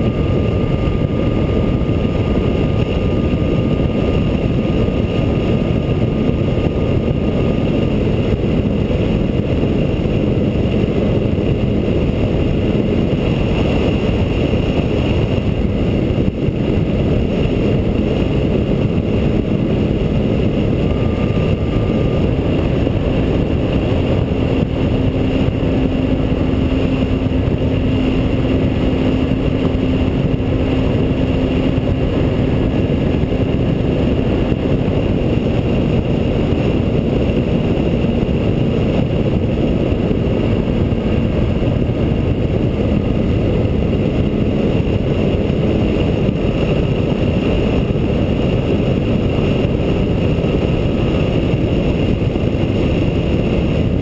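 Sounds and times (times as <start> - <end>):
model plane engine droning: 0.0 - 54.0
wind rushing over camera: 0.0 - 54.0.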